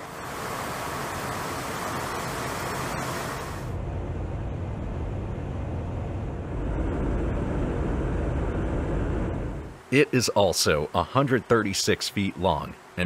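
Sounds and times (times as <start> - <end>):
hiss: 0.0 - 3.7
jet aircraft rumble: 0.0 - 13.0.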